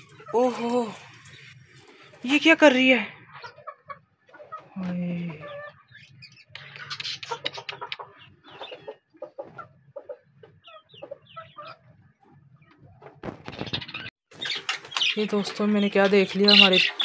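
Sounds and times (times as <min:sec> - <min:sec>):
budgerigars chirping: 0:03.2 - 0:12.0, 0:13.5 - 0:17.0.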